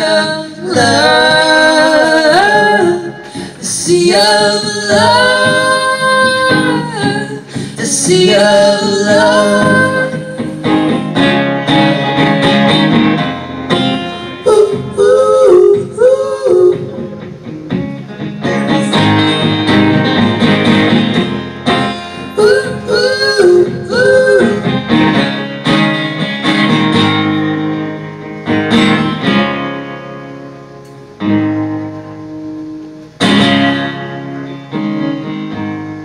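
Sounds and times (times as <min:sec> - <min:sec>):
person singing wordless line: 0:00.0 - 0:10.7, 0:14.4 - 0:17.2, 0:21.9 - 0:24.8
acoustic guitar strumming: 0:00.0 - 0:36.0.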